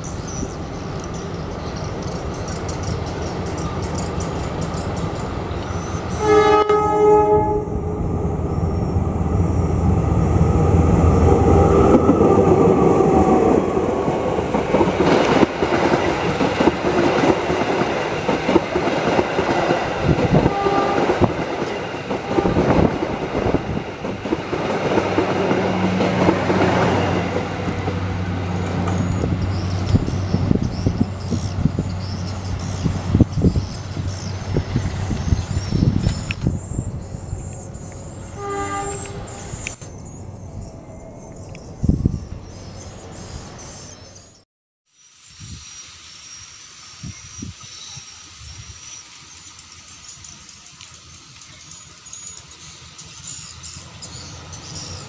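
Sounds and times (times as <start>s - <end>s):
diesel locomotive engine drone: 0.0s - 44.4s, 46.0s - 55.0s
train horn: 6.1s - 9.6s, 20.3s - 23.0s, 38.3s - 39.7s
wheels clacking over rail joints: 11.4s - 33.2s.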